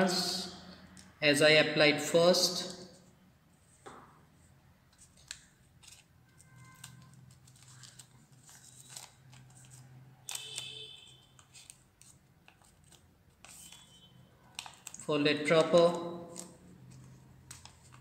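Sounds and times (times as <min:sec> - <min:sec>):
paper rustling and crinkling: 0:04.9 - 0:10.6, 0:11.4 - 0:18.0.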